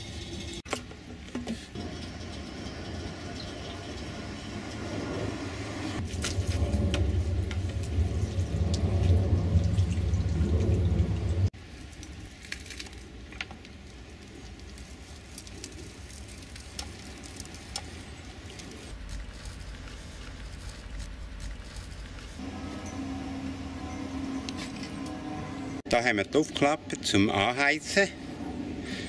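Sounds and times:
steam engine low rumble: 1.7s - 11.5s, 22.4s - 25.9s.

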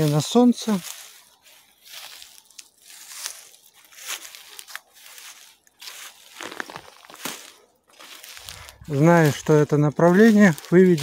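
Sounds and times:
footsteps crunching through undergrowth: 0.0s - 11.0s
plants brushing against legs: 0.0s - 11.0s.

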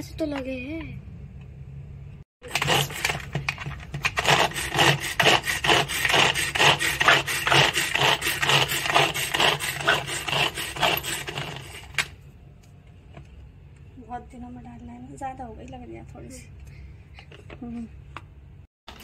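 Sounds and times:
manual food chopper whirring: 2.4s - 12.2s.

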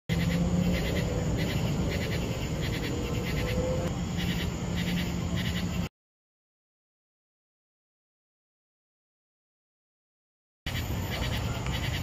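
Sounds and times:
night insects chirping: 0.1s - 5.9s, 10.7s - 12.0s
steady low hum: 0.1s - 5.9s.

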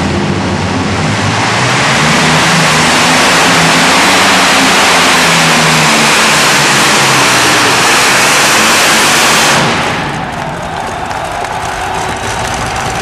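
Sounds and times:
pulling tractor engines at full throttle: 0.0s - 13.0s
crowd cheering: 7.0s - 13.0s.

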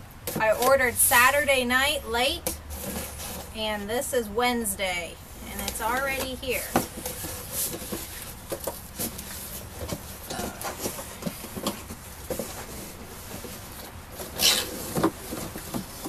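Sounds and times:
cardboard flaps scraping: 6.7s - 16.0s.

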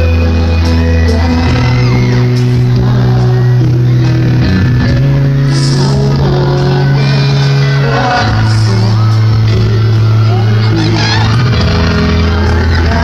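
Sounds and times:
live rock band playing: 0.0s - 13.0s
person singing: 0.0s - 13.0s.

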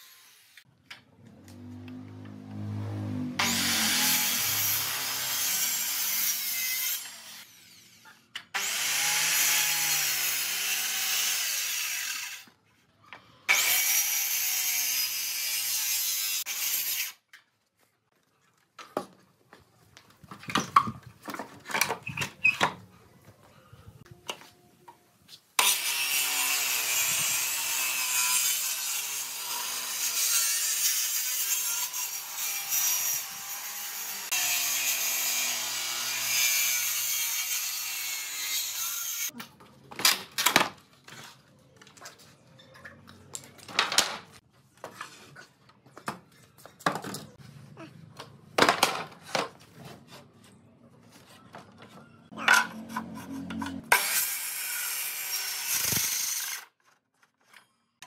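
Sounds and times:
circular saw cutting wood: 0.0s - 0.7s, 1.6s - 12.6s, 13.5s - 17.2s, 25.6s - 39.3s, 52.3s - 56.8s.

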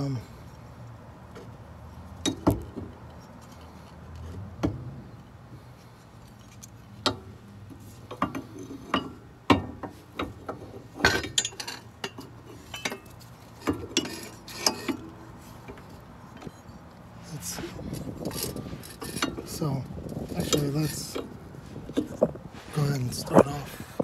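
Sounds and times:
metal clinks and knocks: 8.1s - 22.4s.

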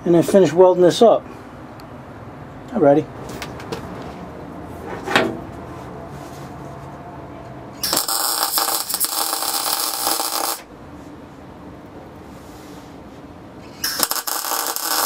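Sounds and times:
welding arc crackle: 7.8s - 10.7s, 13.8s - 15.0s.

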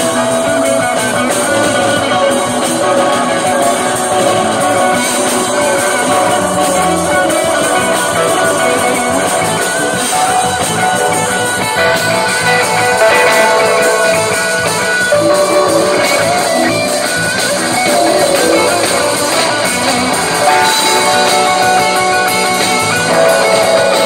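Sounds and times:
drum kit: 0.0s - 24.0s
electric bass: 0.0s - 24.0s
electric guitar: 0.0s - 24.0s.

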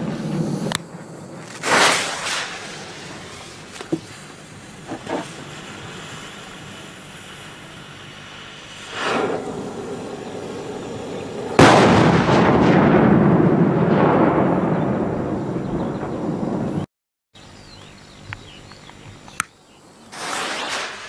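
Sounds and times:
firework bursts: 0.0s - 15.5s, 20.1s - 21.0s
rumbling echo: 9.0s - 16.8s.

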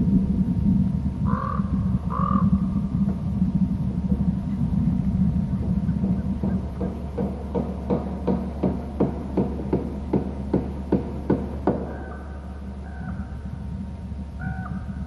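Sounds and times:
low hum: 0.0s - 15.0s
sharp knocks: 6.0s - 12.1s.

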